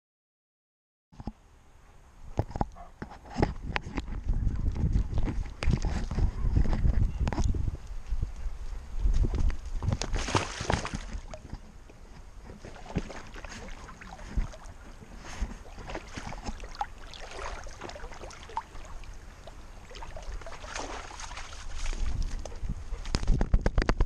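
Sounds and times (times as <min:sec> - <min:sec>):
dog splashing through water: 0:09.8 - 0:11.5, 0:12.4 - 0:23.3.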